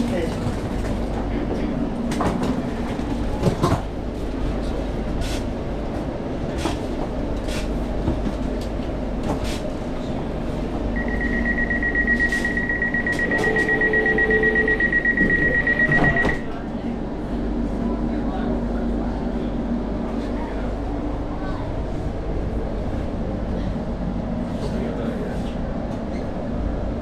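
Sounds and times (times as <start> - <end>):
electric train hum: 0.0 - 27.0
rapid high-pitched door beeping: 11.0 - 16.5
train doors knocking open: 12.2 - 16.5.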